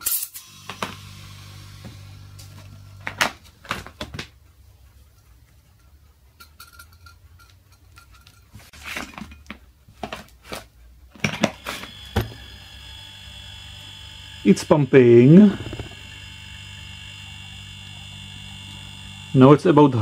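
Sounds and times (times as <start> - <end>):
compressor high whine: 0.3 - 3.2, 11.3 - 20.0
fridge compressor humming: 0.4 - 3.7, 11.4 - 20.0.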